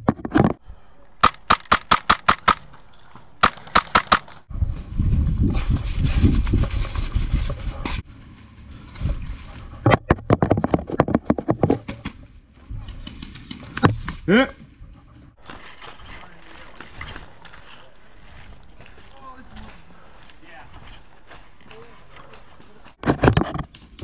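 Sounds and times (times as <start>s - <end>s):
airsoft rifle rapid shots: 1.2s - 2.8s, 3.4s - 4.4s.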